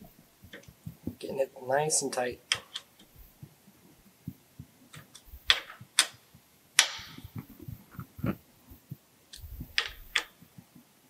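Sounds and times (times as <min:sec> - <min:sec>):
faint handling noise: 0:00.0 - 0:11.0
wrench metal clicks and taps: 0:02.5 - 0:03.1, 0:04.9 - 0:06.2, 0:06.8 - 0:07.4, 0:09.3 - 0:10.4.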